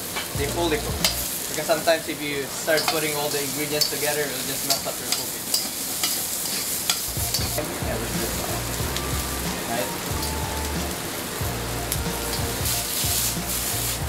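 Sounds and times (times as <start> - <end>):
broccoli sizzling in a wok: 0.0 - 14.0
background music with bass line: 0.4 - 1.3, 7.1 - 14.0.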